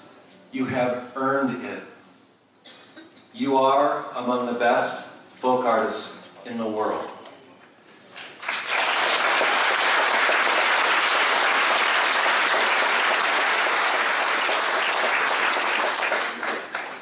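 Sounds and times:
audience applauding: 8.2 - 17.0.

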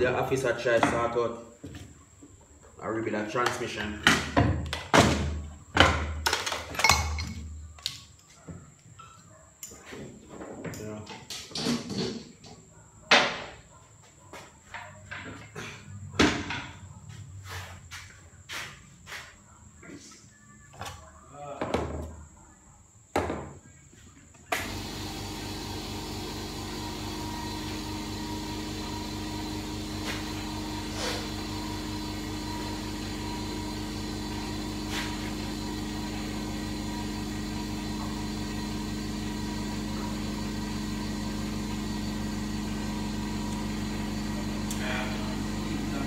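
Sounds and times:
air compressor humming: 24.5 - 46.0.

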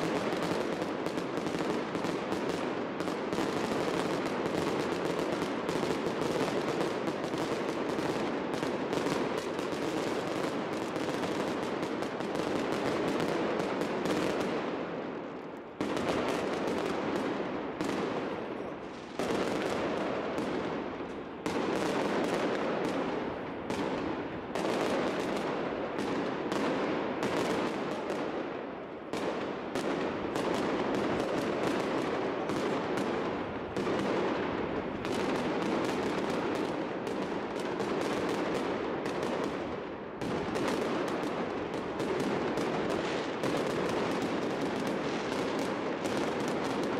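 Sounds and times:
fireworks bangs and crackles: 0.0 - 46.9.

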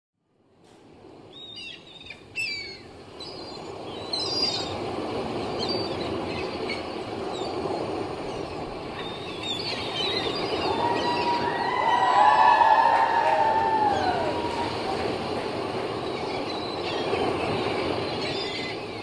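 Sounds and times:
surf washing: 0.4 - 19.0
gulls crying: 8.3 - 19.0.

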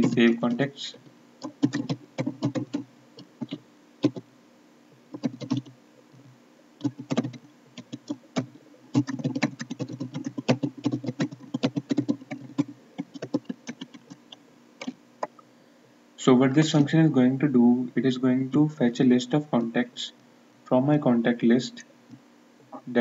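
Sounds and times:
computer keyboard typing: 0.0 - 0.4, 1.4 - 2.8, 3.4 - 4.2, 5.1 - 5.7, 6.8 - 15.0.

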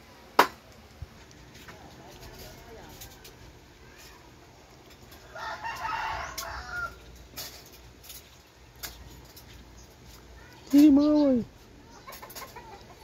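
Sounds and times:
rooster crowing: 5.2 - 7.1.

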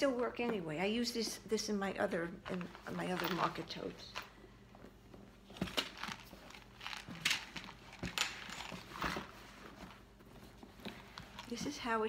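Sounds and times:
bag brushing and rustling: 5.5 - 11.6.

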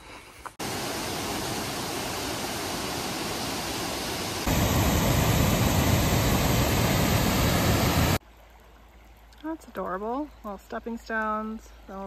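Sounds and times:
stream water rushing: 0.6 - 9.0.

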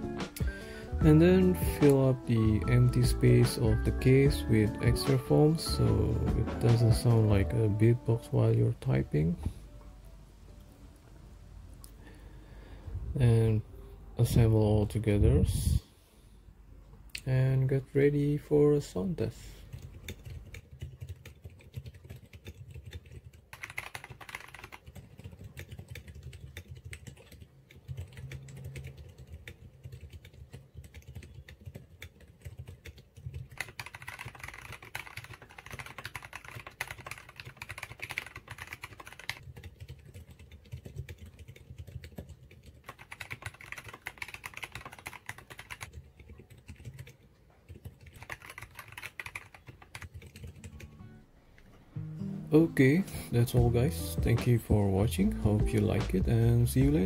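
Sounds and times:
mechanical keyboard typing: 19.7 - 51.0.

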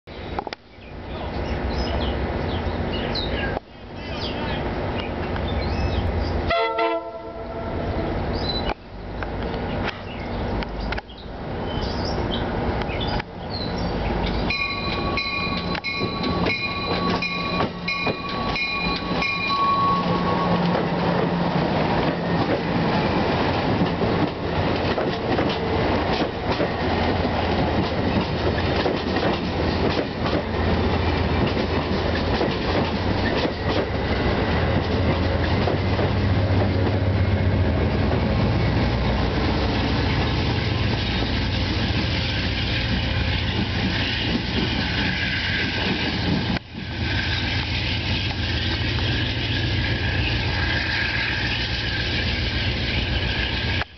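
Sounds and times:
diesel locomotive rumble: 0.2 - 53.9
train wheels clicking over rail joints: 14.2 - 37.1, 39.2 - 53.9
thin high ringing: 14.4 - 20.8.

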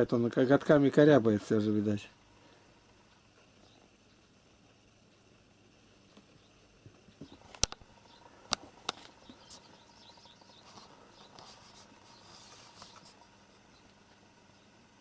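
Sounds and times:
sharp clicks: 7.4 - 7.9.

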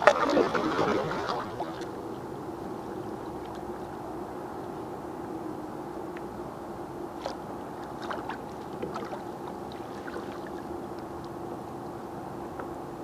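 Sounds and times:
water splashing against kayak hull: 0.0 - 2.1, 7.2 - 11.4
steady low hum: 0.0 - 13.0.

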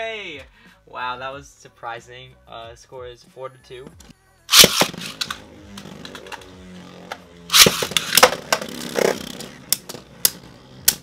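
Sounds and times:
spinning tops clashing: 4.5 - 5.4, 7.5 - 10.0
spinning tops whirring: 4.5 - 11.0.

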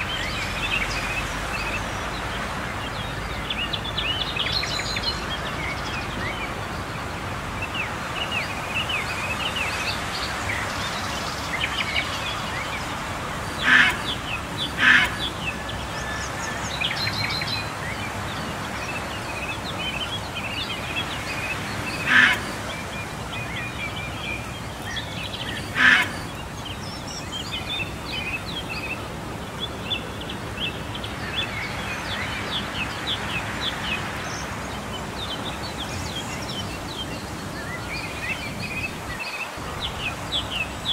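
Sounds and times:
outdoor background hiss: 0.0 - 40.9
small birds chirping: 0.0 - 40.9
loud short bird calls: 25.7 - 26.2.

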